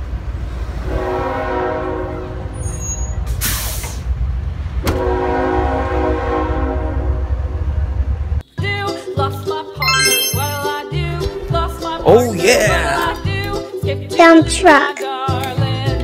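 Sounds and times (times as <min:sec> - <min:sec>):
locomotive horn blasts: 0:00.8 - 0:02.5, 0:04.9 - 0:07.2.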